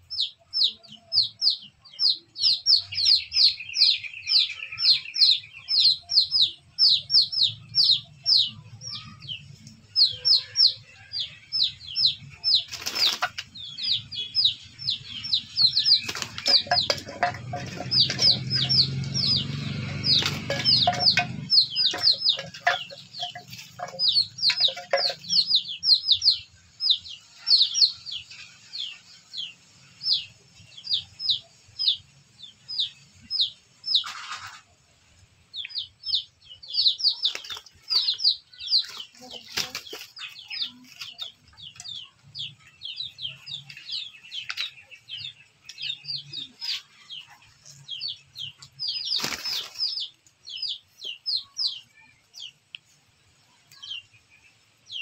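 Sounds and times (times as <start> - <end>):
high bird chirps: 0.0 - 34.5
chickens fighting wing flaps: 12.6 - 13.5, 15.9 - 18.3, 20.0 - 21.0, 37.2 - 38.0, 38.9 - 40.3, 49.1 - 49.9.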